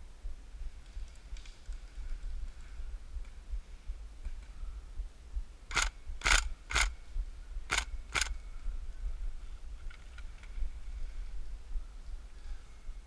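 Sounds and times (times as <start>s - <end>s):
airsoft rifle shots: 5.7s - 7.0s, 7.7s - 8.3s.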